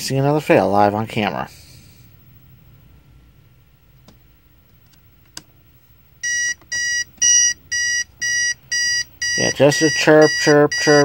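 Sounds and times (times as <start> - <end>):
alarm clock chirping beep: 6.2 - 11.0.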